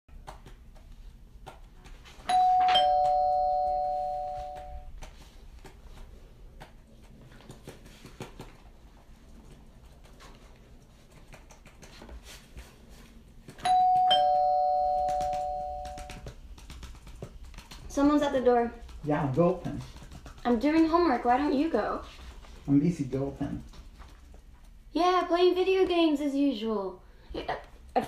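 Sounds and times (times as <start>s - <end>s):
two-tone doorbell chime: 2.3s - 4.9s, 13.6s - 16.1s.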